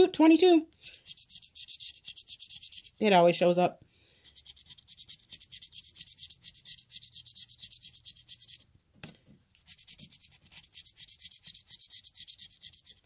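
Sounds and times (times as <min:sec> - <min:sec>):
scratching lottery ticket: 0:00.9 - 0:03.0, 0:04.2 - 0:08.6, 0:09.6 - 0:13.0.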